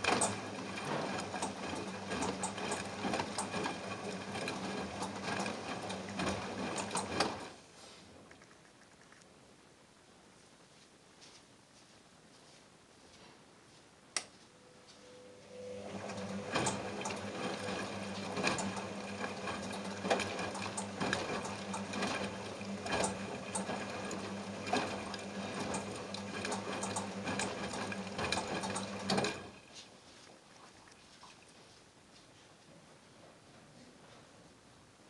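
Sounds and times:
washing machine motor hum: 0:00.0 - 0:08.3, 0:14.6 - 0:31.0
water sloshing in drum: 0:30.0 - 0:31.8.

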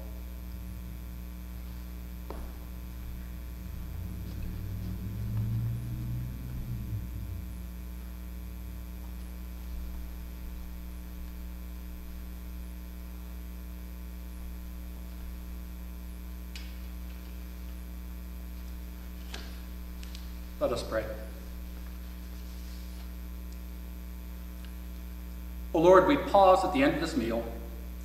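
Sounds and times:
electrical mains hum: 0:00.0 - 0:28.0
low rumble: 0:02.1 - 0:13.3.

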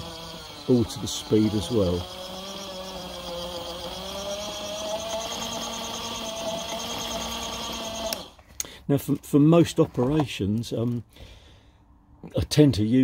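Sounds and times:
small gear motor whining: 0:00.0 - 0:08.4.

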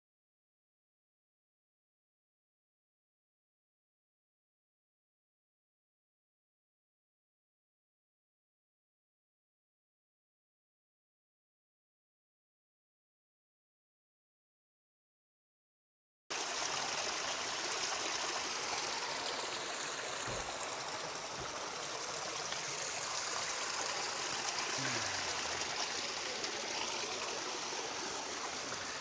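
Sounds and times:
stream rushing over rocks: 0:16.3 - 0:29.0.

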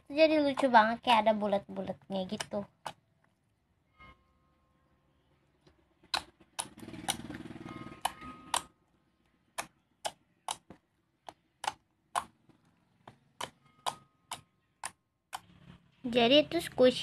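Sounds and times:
slime clicking and popping: 0:06.0 - 0:07.3, 0:09.5 - 0:15.5.

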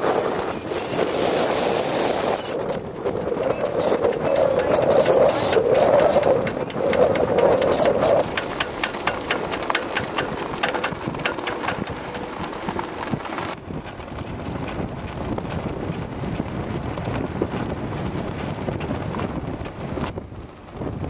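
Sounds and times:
wind buffeting microphone: 0:00.0 - 0:21.0
rapid sharp ticks: 0:02.6 - 0:14.0.

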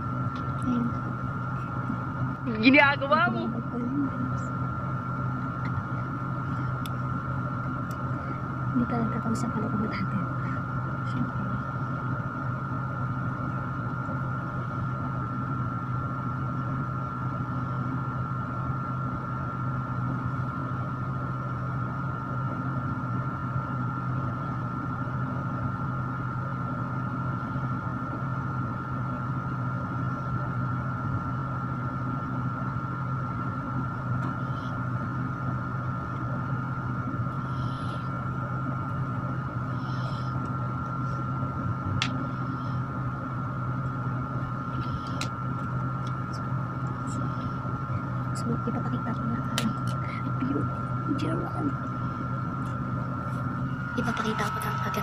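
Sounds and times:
electric fan humming: 0:00.0 - 0:55.0
thin whine: 0:00.0 - 0:55.0.

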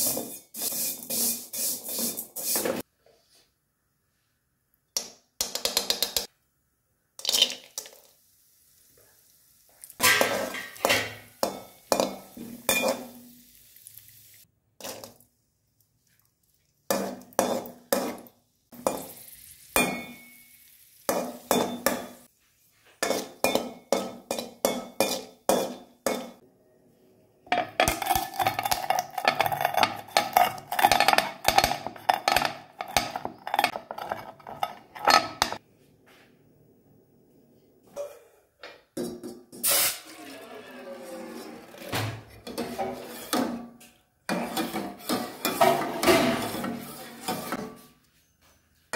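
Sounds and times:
metal spatula scraping a pan: 0:00.0 - 0:02.9, 0:10.0 - 0:13.3, 0:16.9 - 0:26.4, 0:27.8 - 0:35.6, 0:39.6 - 0:48.4.

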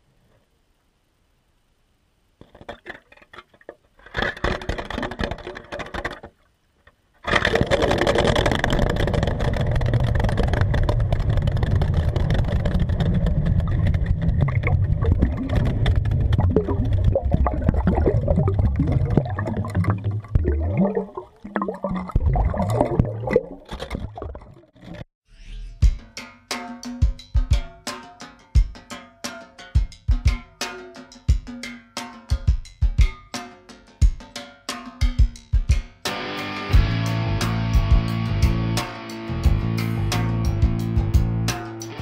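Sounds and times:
water churning under ice: 0:07.2 - 0:25.1.

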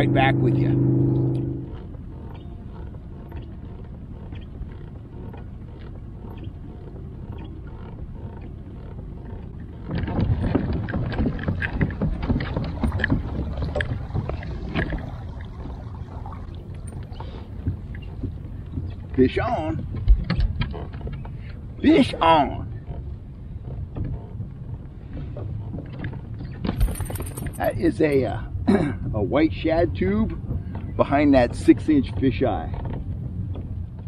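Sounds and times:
water lapping against kayak hull: 0:00.0 - 0:34.0
small knocks and clicks: 0:19.8 - 0:21.6, 0:22.9 - 0:27.7.

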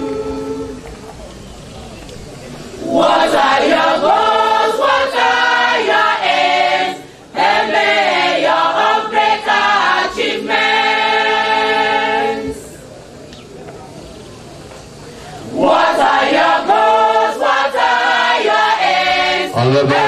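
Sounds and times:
choir singing a hymn: 0:00.0 - 0:00.9, 0:02.8 - 0:12.9, 0:15.3 - 0:20.0.

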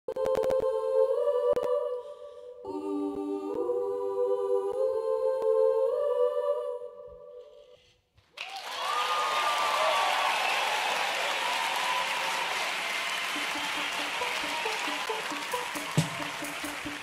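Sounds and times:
audience applause: 0:08.3 - 0:17.0.

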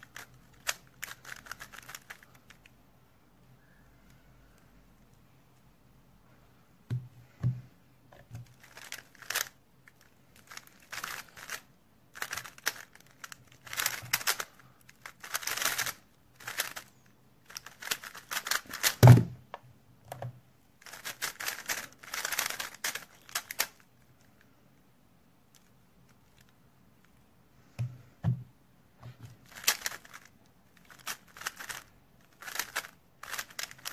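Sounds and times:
puzzle cube clicking: 0:08.6 - 0:09.5, 0:12.2 - 0:16.9, 0:17.5 - 0:19.0, 0:20.8 - 0:23.8, 0:29.5 - 0:30.3, 0:30.9 - 0:33.9.

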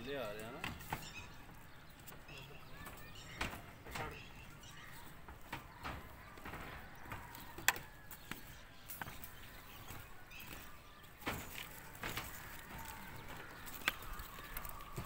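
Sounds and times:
faint outdoor background noise: 0:00.0 - 0:15.0
sharp clicks and light knocks: 0:00.4 - 0:15.0.

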